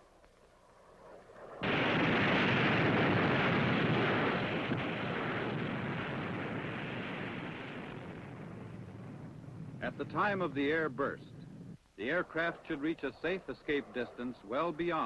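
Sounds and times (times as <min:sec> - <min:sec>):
explosion rush of noise: 0:01.6 - 0:10.3.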